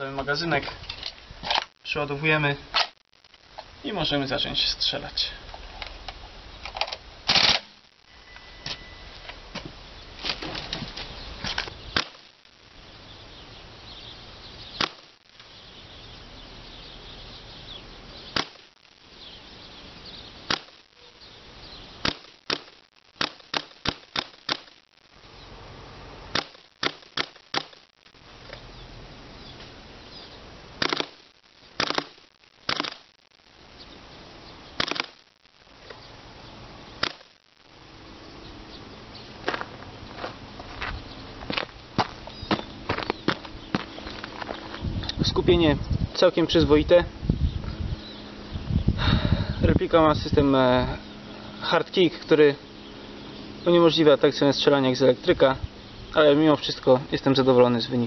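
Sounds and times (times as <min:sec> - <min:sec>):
airsoft rifle shots cracking: 0:06.8 - 0:07.8, 0:12.0 - 0:12.3, 0:14.8 - 0:15.1, 0:18.3 - 0:18.8, 0:20.4 - 0:20.8, 0:22.0 - 0:24.8, 0:26.3 - 0:27.8, 0:30.8 - 0:33.1, 0:34.8 - 0:35.2, 0:37.0 - 0:37.3.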